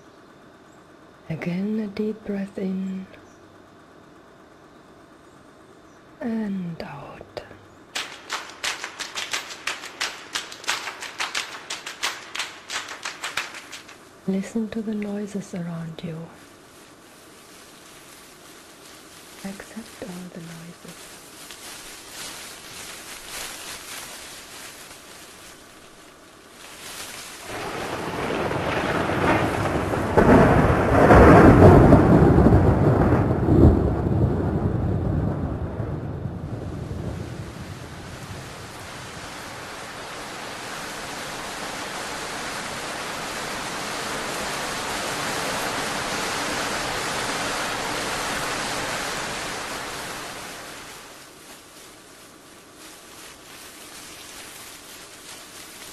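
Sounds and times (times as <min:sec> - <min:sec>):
rain hissing: 0:06.2 - 0:55.9
thunder rolling: 0:27.4 - 0:39.3.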